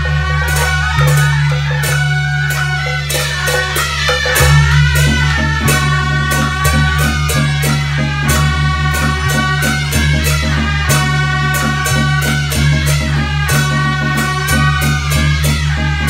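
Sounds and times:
shawms playing melody: 0.0s - 9.8s
drum and percussion beat: 0.0s - 16.0s.

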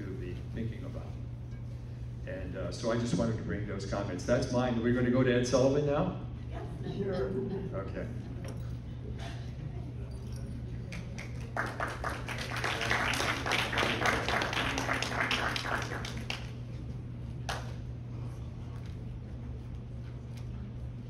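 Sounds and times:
steady low hum: 0.0s - 21.0s
audience applauding: 10.9s - 16.7s.

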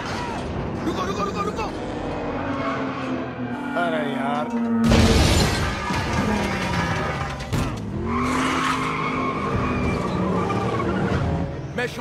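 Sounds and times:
loud crash: 4.8s - 7.6s
tires skidding and squealing: 5.4s - 11.7s.

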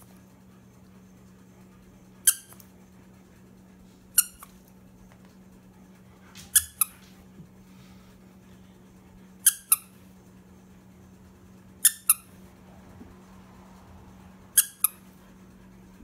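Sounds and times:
dog toy squeaking: 2.2s - 2.6s, 4.1s - 4.5s, 6.5s - 7.0s, 9.4s - 10.0s, 11.8s - 12.4s, 14.5s - 15.0s.

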